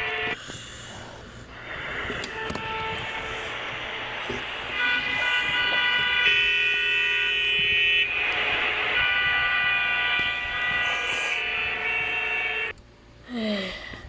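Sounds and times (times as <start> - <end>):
electronic horn-like tones: 0.0 - 0.4, 1.9 - 12.8.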